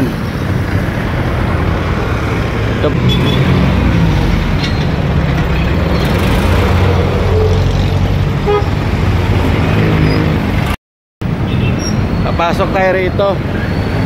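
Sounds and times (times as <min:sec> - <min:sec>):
motor scooter engine: 0:00.4 - 0:09.6
vehicle horn toot: 0:03.0 - 0:03.5, 0:08.4 - 0:08.8.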